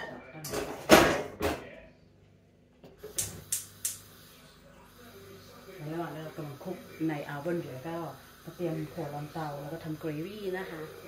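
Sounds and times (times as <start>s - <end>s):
hob spark igniter clicking: 3.1s - 4.1s.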